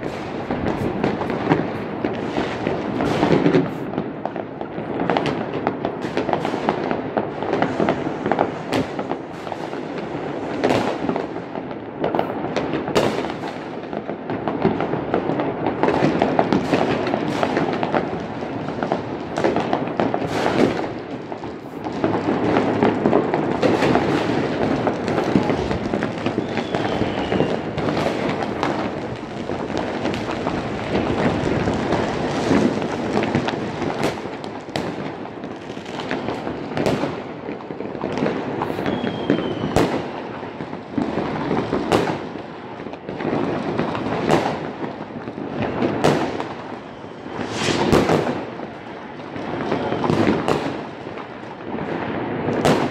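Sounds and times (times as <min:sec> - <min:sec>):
sharp near firework bangs: 0:00.0 - 0:04.1, 0:15.8 - 0:21.2, 0:21.8 - 0:37.3, 0:47.3 - 0:48.6
crackle of distant fireworks: 0:00.0 - 0:52.9
faint falling whistles: 0:26.4 - 0:27.6, 0:38.8 - 0:39.8, 0:46.8 - 0:47.8.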